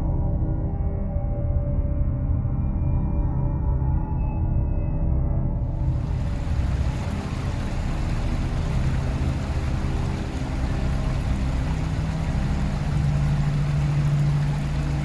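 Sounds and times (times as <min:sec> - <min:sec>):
droning ambient music: 0:00.0 - 0:15.0
steady rumble: 0:05.7 - 0:15.0.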